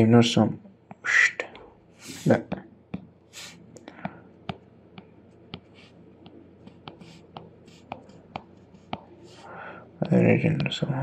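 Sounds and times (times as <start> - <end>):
stylus tapping on tablet: 2.9 - 3.2, 4.0 - 9.2
stylus scratching on screen: 5.4 - 10.7.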